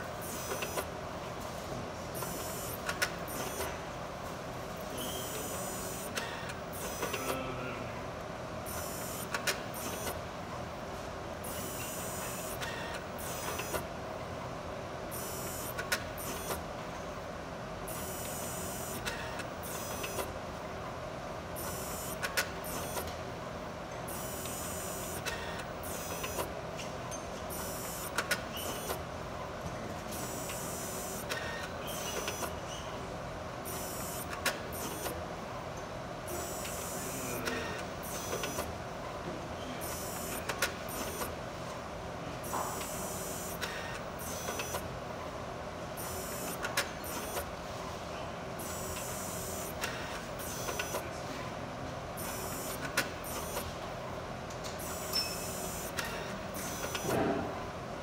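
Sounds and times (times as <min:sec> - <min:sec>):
high-pitched motor bursts: 0:52.2 - 0:53.6, 0:54.8 - 0:57.1.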